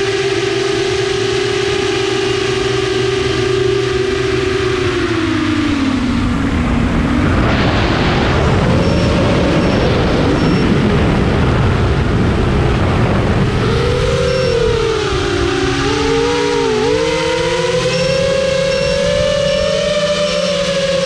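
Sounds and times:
drone motors whining: 0.0s - 21.0s
wind rush over camera: 5.2s - 16.3s.

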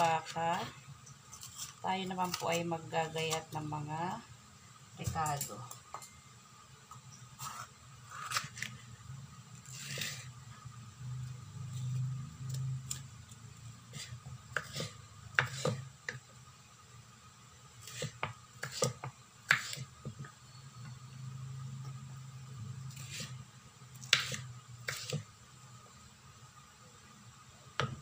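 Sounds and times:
knife slicing pepper: 7.4s - 8.8s, 14.0s - 15.8s, 17.8s - 19.9s, 22.9s - 23.4s, 24.0s - 25.3s.

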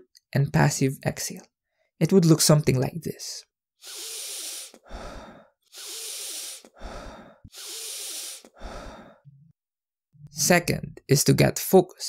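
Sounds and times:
person breathing deeply and fast: 3.8s - 9.3s.

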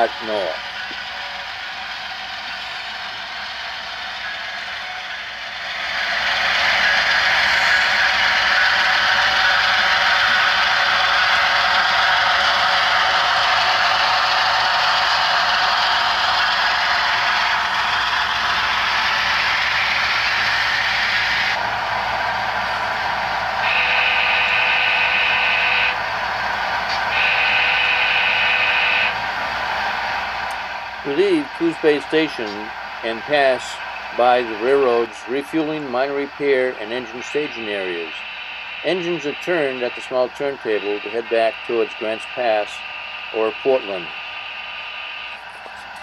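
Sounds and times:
locomotive running noise: 0.0s - 46.0s
locomotive horn blasts: 23.6s - 26.0s, 27.1s - 29.2s.

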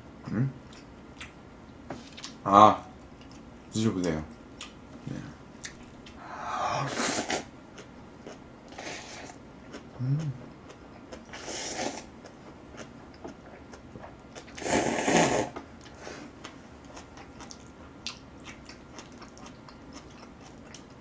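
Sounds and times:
soft wet chewing: 0.7s - 2.4s, 3.0s - 3.5s, 4.3s - 6.2s, 7.7s - 14.6s, 15.8s - 21.0s
person slurping noodles: 6.4s - 7.5s, 8.7s - 9.4s, 11.3s - 12.1s, 14.5s - 15.6s.

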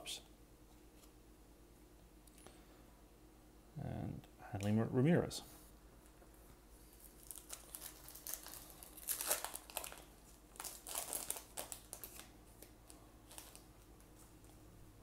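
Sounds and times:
foil wrapper tearing and crinkling: 6.9s - 13.7s.

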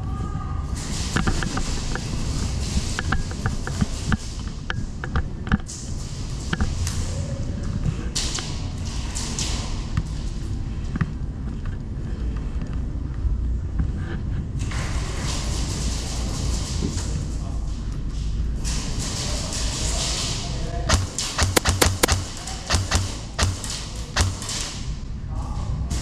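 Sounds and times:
sharp clicks and taps: 20.9s - 24.4s.

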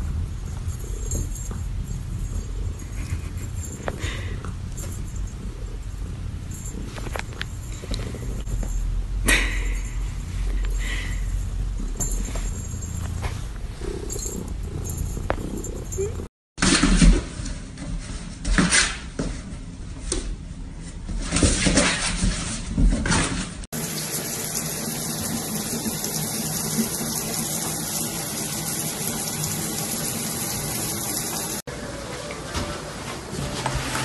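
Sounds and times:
shower water running: 23.8s - 34.0s.

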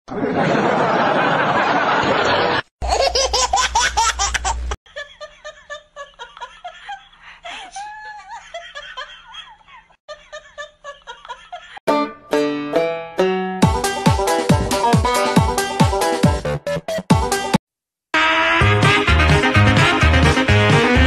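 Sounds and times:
loud rapid laughter: 0.1s - 7.1s
music: 11.9s - 17.6s, 18.2s - 21.0s.

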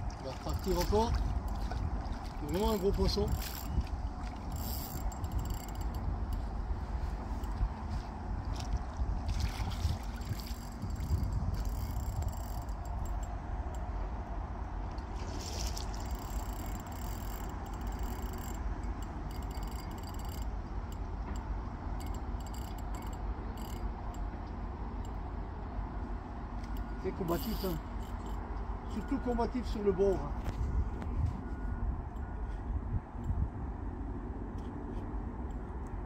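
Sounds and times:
water lapping: 0.0s - 5.8s, 7.4s - 12.0s, 14.9s - 16.7s
wind buffeting microphone: 0.0s - 16.8s, 30.4s - 34.5s
fishing reel drag ticking: 0.5s - 1.7s, 2.4s - 6.5s, 10.2s - 13.8s, 16.0s - 21.4s, 22.0s - 24.2s, 26.6s - 28.4s.

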